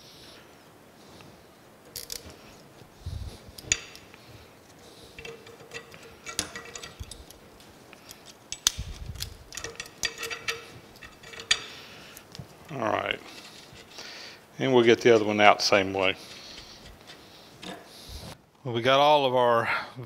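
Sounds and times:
metal parts clinking and clanking: 1.8s - 2.4s, 3.5s - 14.0s.

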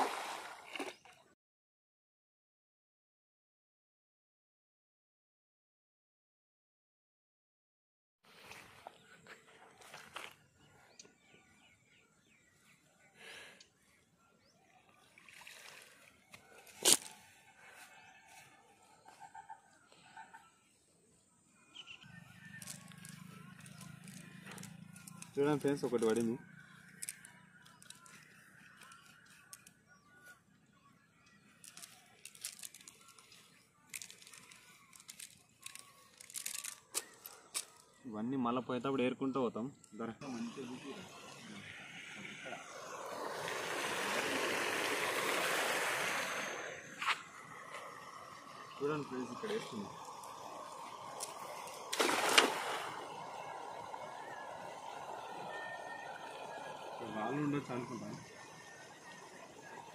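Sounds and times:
water dripping and splashing: 0.0s - 1.2s, 15.2s - 17.1s, 47.7s - 54.0s
net rustling: 31.6s - 37.8s
wet net rustling: 51.3s - 53.0s.

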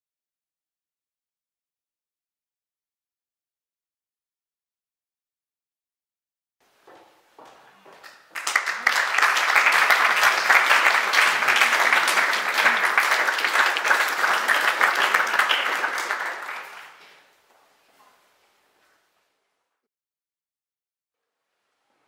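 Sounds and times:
audience applause: 8.1s - 17.2s.

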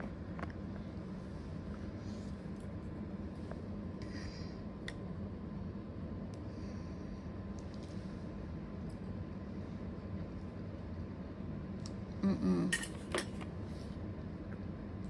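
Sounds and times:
room hum: 0.0s - 15.0s.

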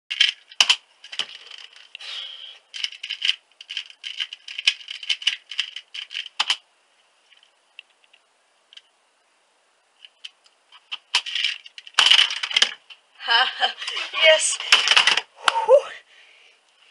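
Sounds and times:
puzzle cube clicking and rattling: 0.1s - 2.0s, 2.7s - 6.6s, 10.0s - 12.8s, 14.6s - 15.3s.

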